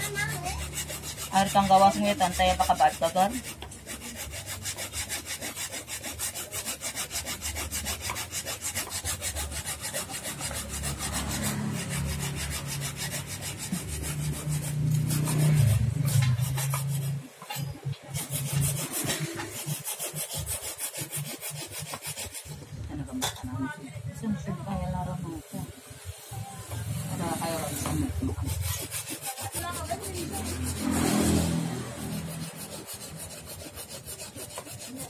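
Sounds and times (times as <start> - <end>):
coconut grated on metal grater: 0.0 - 23.4, 24.2 - 35.0
knife chopping on wooden board: 13.6 - 17.0.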